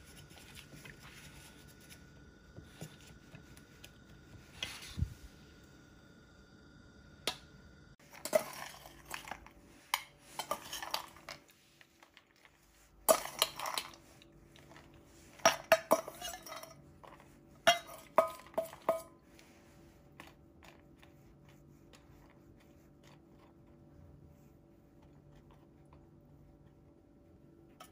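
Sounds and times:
metal spoon scraping metal: 0:08.1 - 0:11.3, 0:15.5 - 0:16.8.

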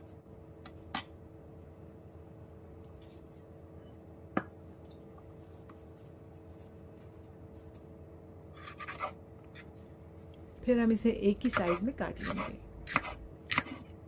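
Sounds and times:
steady low hum: 0:00.0 - 0:14.0
knife slicing on wooden board: 0:08.6 - 0:09.7, 0:11.5 - 0:13.8.

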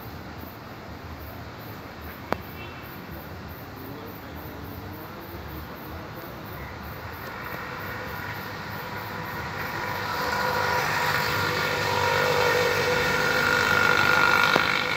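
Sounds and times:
large vehicle approaching: 0:06.0 - 0:14.9.

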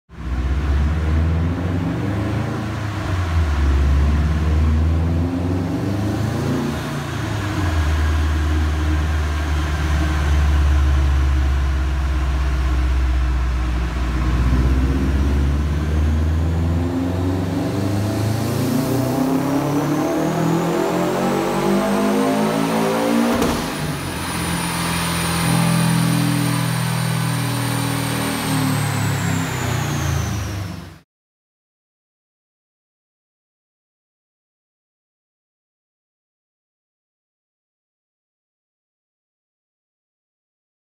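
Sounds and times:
high turbo whine: 0:00.2 - 0:31.0
turbocharged car engine revving: 0:00.2 - 0:31.0.

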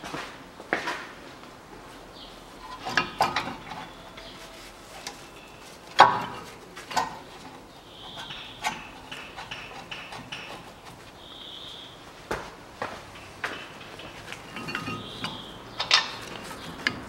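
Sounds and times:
metallic clinks and taps: 0:13.1 - 0:17.0.

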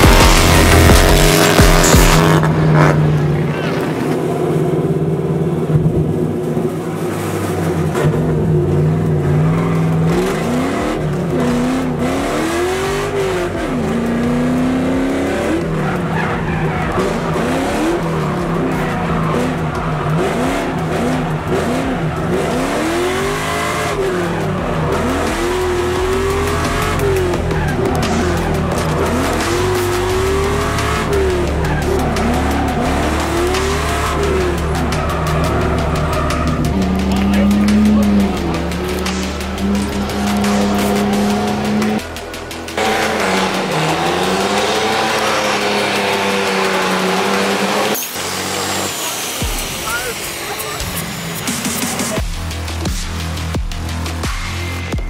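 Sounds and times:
engine revving hard: 0:00.0 - 0:04.8, 0:06.6 - 0:55.0
tyres squealing: 0:09.0 - 0:42.0.

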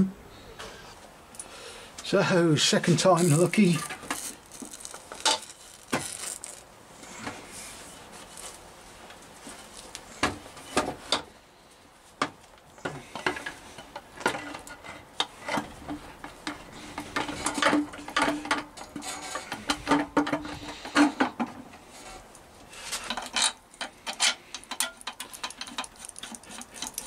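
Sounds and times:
metal clinks and scrapes: 0:03.1 - 0:06.7, 0:21.9 - 0:27.0.

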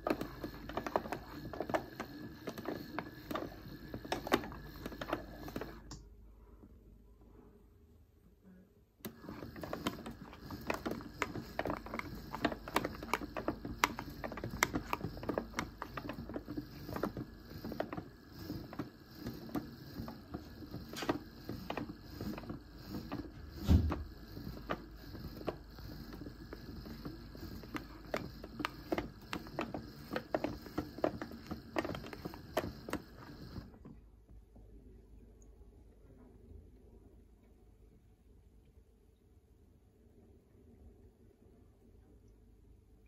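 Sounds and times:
toy washing machine motor humming: 0:00.0 - 0:06.0, 0:09.0 - 0:34.0.

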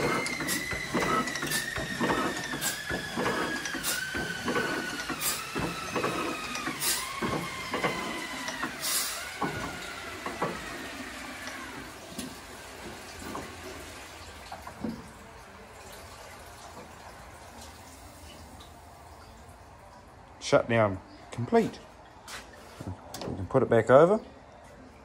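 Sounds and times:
oil engine knocks and clicks: 0:00.0 - 0:13.8.

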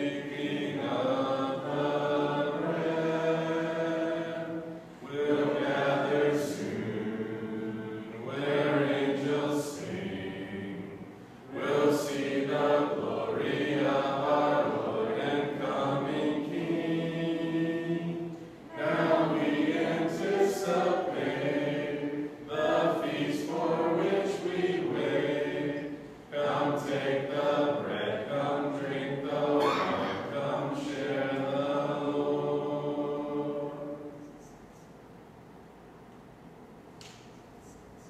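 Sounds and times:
voices singing a hymn a cappella: 0:00.0 - 0:35.0.

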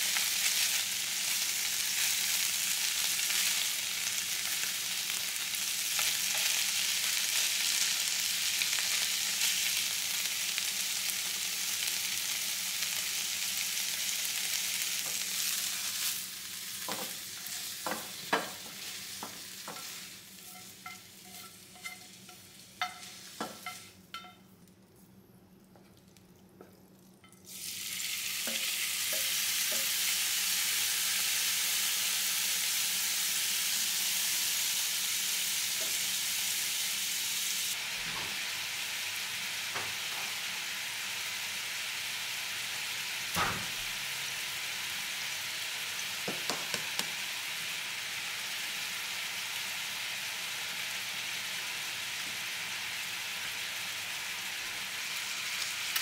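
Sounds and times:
beef sizzling in frying pan: 0:00.0 - 0:24.0, 0:27.5 - 0:56.0
small taps on pan: 0:46.2 - 0:47.1.

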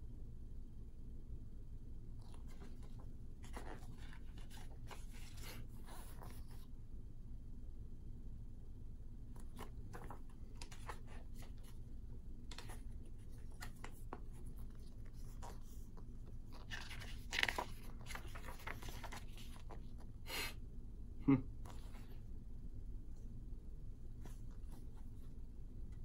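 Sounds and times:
paper pages rustling: 0:02.2 - 0:06.6, 0:09.4 - 0:20.1.

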